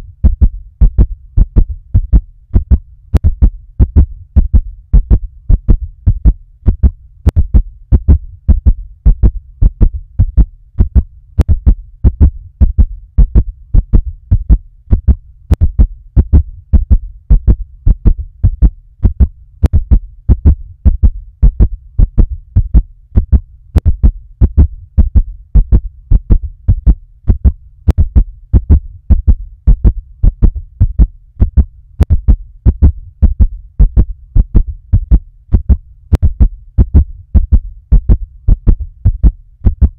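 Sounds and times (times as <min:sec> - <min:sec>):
heartbeat thumps: 0:00.0 - 0:39.9.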